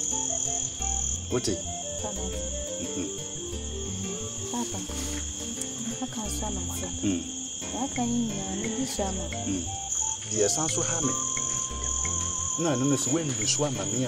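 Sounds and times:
crickets chirping: 0.0s - 14.0s
person talking: 3.9s - 5.2s, 5.8s - 11.2s.

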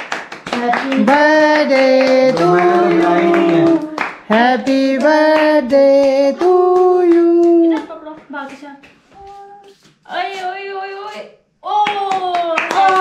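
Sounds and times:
hand clapping: 0.0s - 10.5s, 11.1s - 13.0s
woman and children singing: 0.6s - 8.2s.

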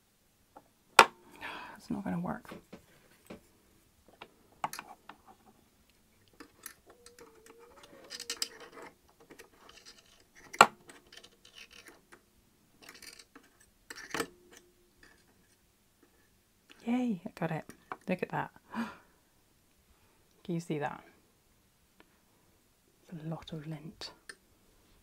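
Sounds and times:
clicks and scratches on metal: 4.6s - 12.2s, 12.8s - 16.3s.

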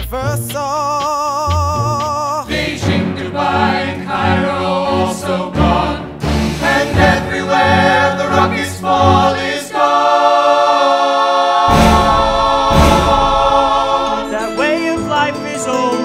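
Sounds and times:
choir singing sustained chord: 2.5s - 15.0s
deep hits: 11.7s - 14.6s.

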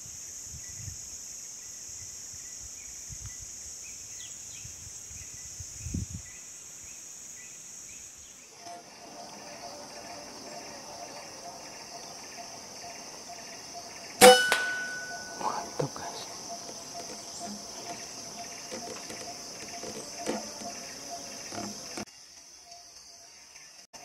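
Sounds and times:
insect chirring: 0.0s - 23.9s.

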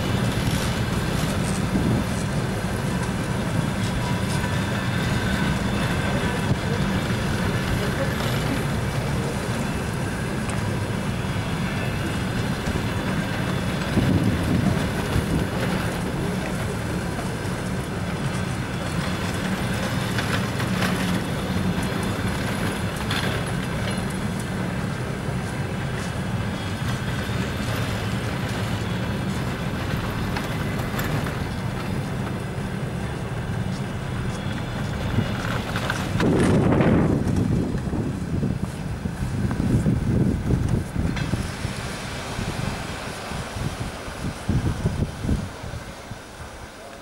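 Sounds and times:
train coaches knocking: 0.0s - 45.8s
train wheels rumbling on rails: 0.0s - 47.0s.

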